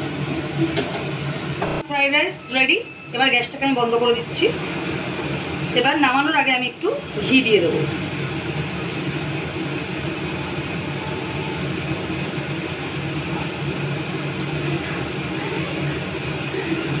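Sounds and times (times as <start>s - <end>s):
steady mechanical drone: 0.0s - 17.0s.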